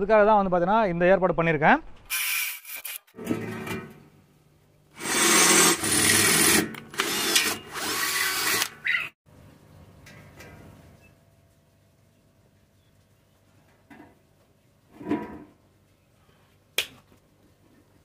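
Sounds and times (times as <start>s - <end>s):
electric drill boring through steel: 5.0s - 8.8s.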